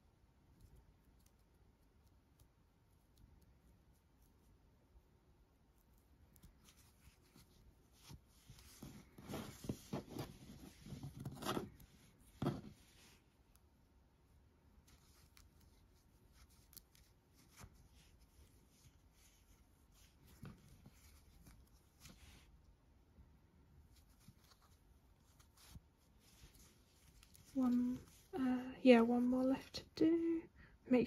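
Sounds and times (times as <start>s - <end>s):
yarn rustling: 5.6s - 13.7s, 14.7s - 22.8s, 23.7s - 29.7s.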